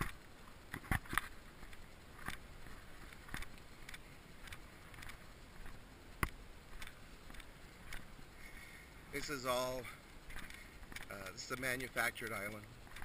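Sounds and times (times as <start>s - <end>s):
low steady hiss: 0.0s - 13.0s
footsteps on gravel: 0.8s - 8.1s.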